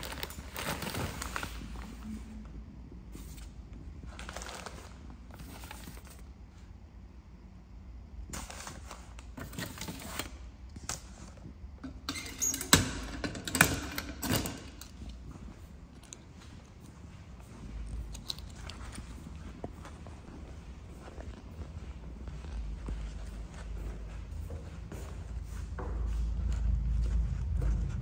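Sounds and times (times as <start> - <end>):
metal mailbox door shut and locked: 12.1 - 14.8.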